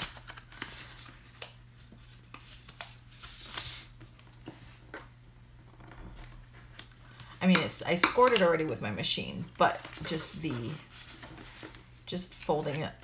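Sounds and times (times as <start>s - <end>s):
paper rustling: 0.0s - 5.1s, 9.6s - 13.0s.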